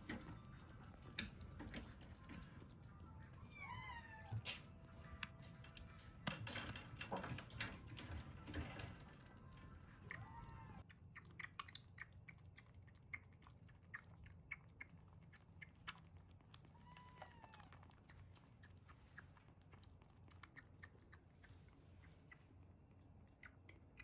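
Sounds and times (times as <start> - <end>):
kitten suckling from bottle: 10.8 - 24.0
kitten mewing: 16.7 - 17.8.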